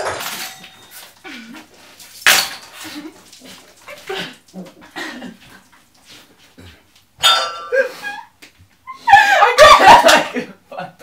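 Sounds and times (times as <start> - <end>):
people gulping and gasping: 2.8 - 6.9.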